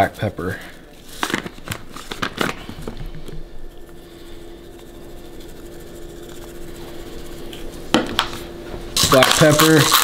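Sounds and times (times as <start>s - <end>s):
faint steady hum: 0.0s - 10.0s
pepper mill grinding: 9.0s - 10.0s.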